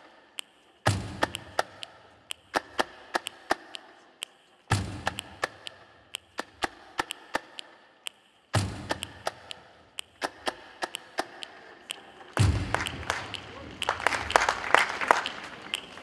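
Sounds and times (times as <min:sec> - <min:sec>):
body percussion: 0:00.0 - 0:16.0
percussive taps and knocks: 0:00.8 - 0:03.8, 0:04.7 - 0:07.6, 0:08.5 - 0:11.5, 0:12.4 - 0:14.6.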